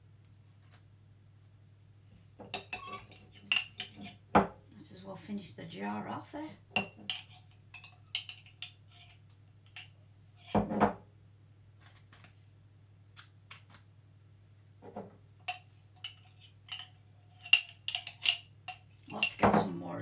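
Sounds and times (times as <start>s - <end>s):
teaspoon clinking in glass jar: 2.5s - 4.1s, 15.5s - 19.4s.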